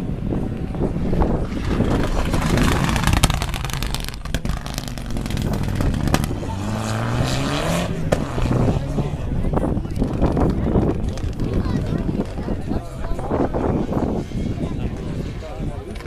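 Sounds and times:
rally car passing at full throttle: 0.8s - 11.0s
exhaust cracks and pops: 1.5s - 6.5s, 9.9s - 12.4s.

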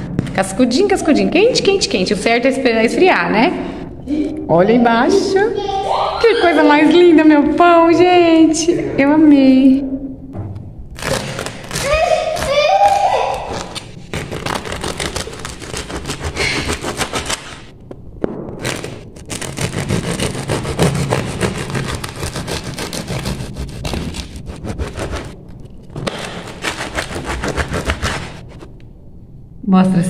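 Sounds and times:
knife sawing through bread crust: 13.5s - 17.6s, 18.7s - 28.7s.

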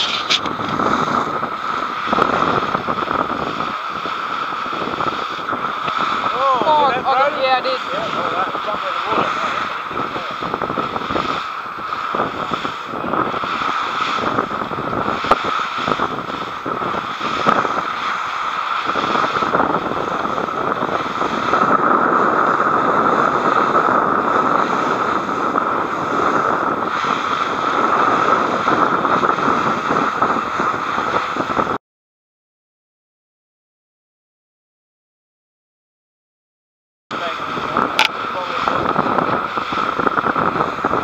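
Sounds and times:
water spray: 0.0s - 31.6s, 37.2s - 41.0s
boat motor drone: 0.0s - 31.8s, 37.1s - 41.0s
hull slapping on waves: 0.0s - 31.8s, 37.1s - 41.0s
wind on microphone: 0.0s - 31.8s, 37.1s - 41.0s.

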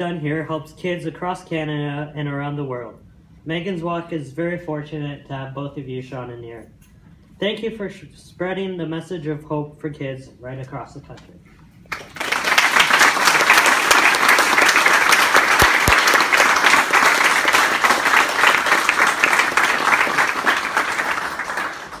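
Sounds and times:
audience applauding: 11.9s - 22.0s.

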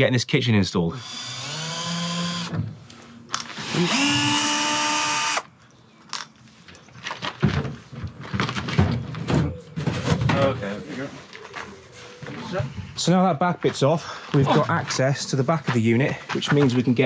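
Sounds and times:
power drill whining: 1.0s - 2.6s, 3.4s - 5.5s.

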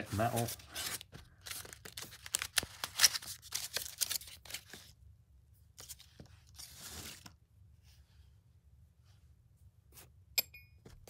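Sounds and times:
cardboard crackling and rustling: 0.0s - 4.9s.

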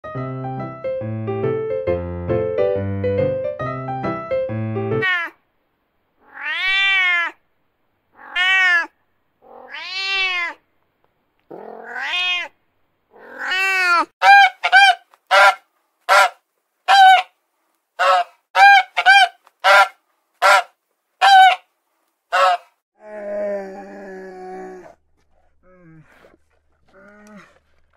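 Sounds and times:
piano music: 0.0s - 5.0s
cat meowing: 5.0s - 5.4s, 6.2s - 7.4s, 8.2s - 10.6s, 11.5s - 12.6s, 13.2s - 14.1s.

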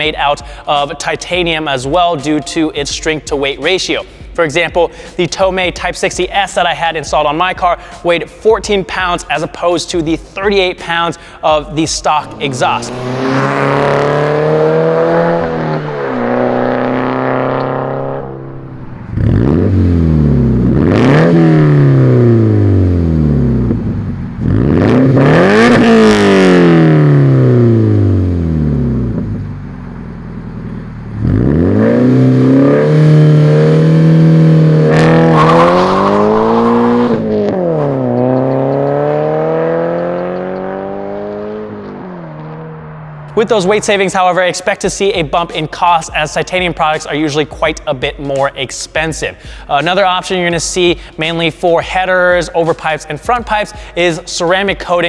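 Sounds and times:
car engine revving: 11.8s - 46.4s.

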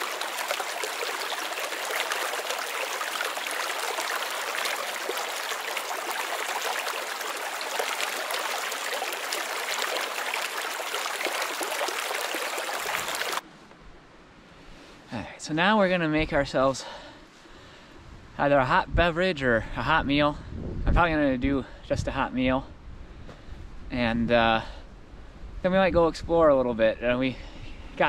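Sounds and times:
creek water flowing: 0.0s - 13.4s.

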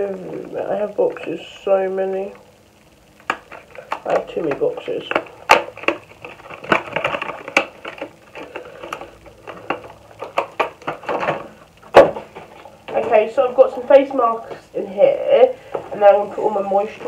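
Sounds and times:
packaging crinkling: 3.2s - 12.9s
boxes and bottles being handled: 3.2s - 13.7s.

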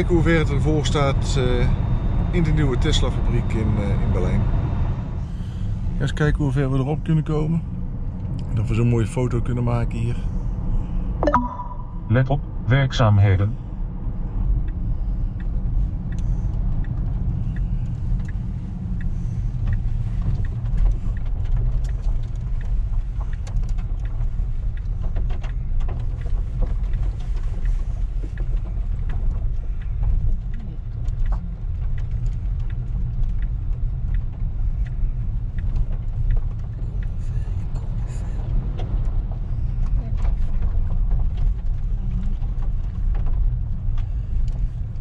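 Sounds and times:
faint ticks: 15.4s - 44.9s.

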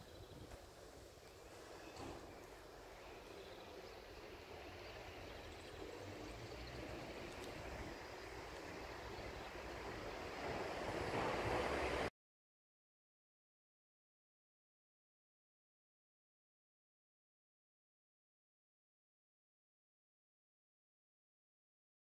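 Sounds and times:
street ambience: 0.0s - 12.1s.

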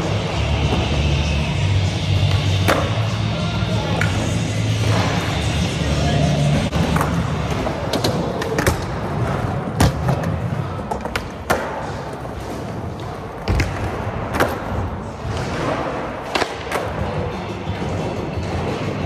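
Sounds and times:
background music: 0.0s - 9.7s, 14.1s - 19.0s.

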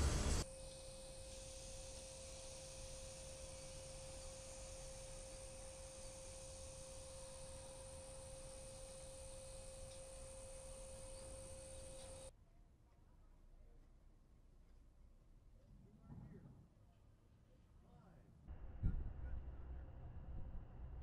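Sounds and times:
faint steady pure tone: 0.0s - 12.3s
low rumble: 18.5s - 21.0s.

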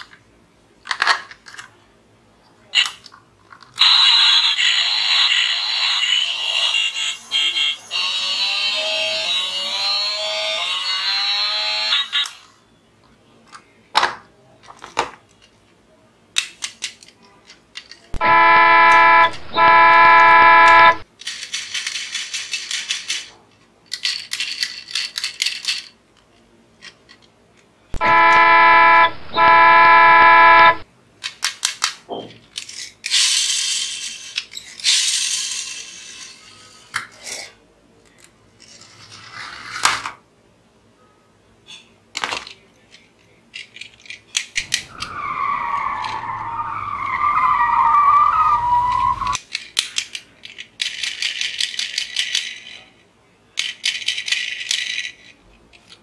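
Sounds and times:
toy horn honk: 18.2s - 21.0s, 28.0s - 30.8s
plastic toy clicks: 21.2s - 23.3s, 23.9s - 25.9s, 49.4s - 52.8s, 53.6s - 55.3s.

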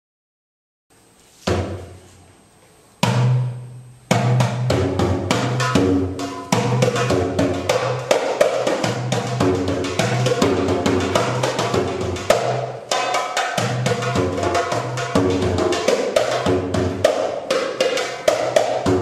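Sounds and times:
heavy drum hits: 1.5s - 2.0s
busy percussion rhythm: 3.0s - 19.0s.

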